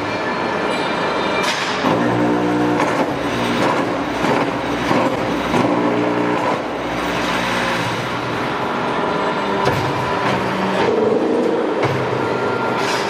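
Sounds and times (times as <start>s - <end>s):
block machine mechanical din: 1.8s - 8.6s.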